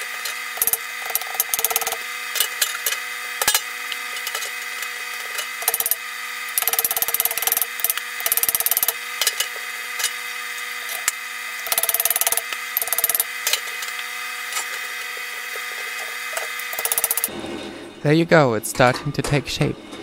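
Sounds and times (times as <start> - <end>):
rapid metallic strikes and scraping: 16.6 - 17.8.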